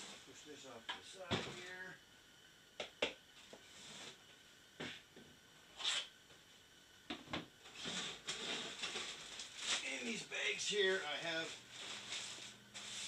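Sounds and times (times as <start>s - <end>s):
rustling: 7.6s - 10.2s, 10.8s - 13.0s.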